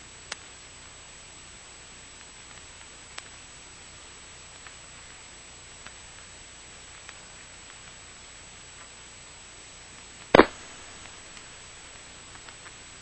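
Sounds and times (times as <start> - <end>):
static hiss: 0.0 - 13.0
loud crackle: 9.9 - 13.0.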